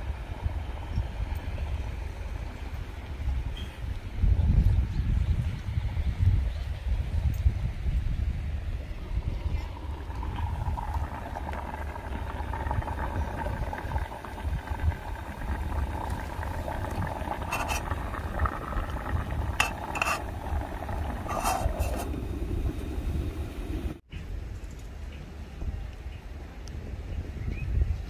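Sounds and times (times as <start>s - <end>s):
steady low rumble: 4.0s - 24.0s.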